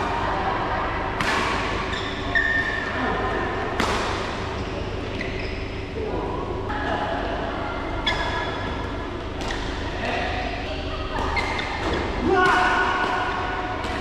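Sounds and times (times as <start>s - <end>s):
steady hum: 0.0s - 14.0s
shoe squeaks: 1.9s - 2.9s, 5.1s - 5.8s, 8.0s - 8.6s
rackets hitting shuttlecock: 3.8s - 4.5s.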